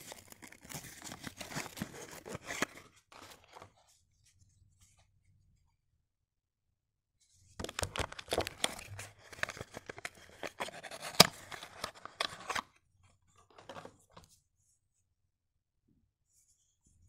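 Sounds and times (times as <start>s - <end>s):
cardboard box crackling and tearing: 0.0s - 2.8s.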